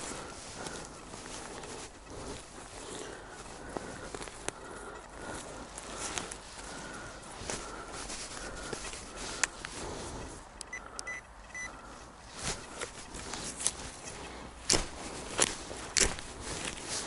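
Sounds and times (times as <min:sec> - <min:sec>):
metal detector beeps: 0:10.6 - 0:11.8
footsteps rustling through leaves: 0:12.4 - 0:17.0.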